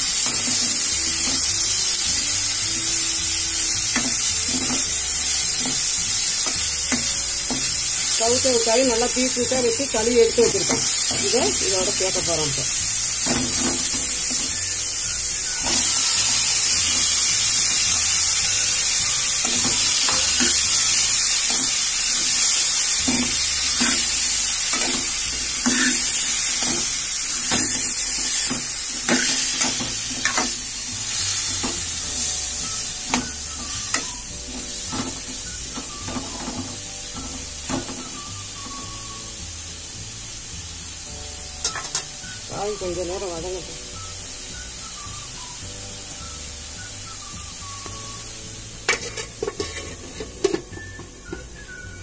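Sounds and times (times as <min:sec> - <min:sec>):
vegetables sizzling in hot oil: 0:00.0 - 0:52.0
steel spoon scraping a pan: 0:03.9 - 0:08.6, 0:19.0 - 0:32.4, 0:48.8 - 0:51.0.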